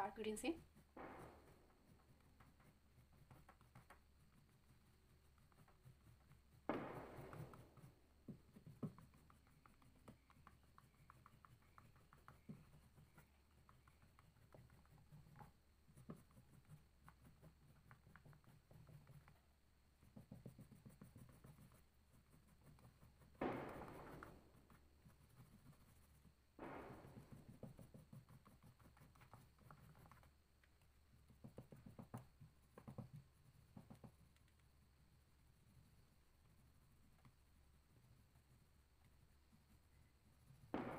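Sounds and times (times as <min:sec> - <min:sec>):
crayon scratching on paper: 0:00.0 - 0:30.4, 0:31.1 - 0:34.4.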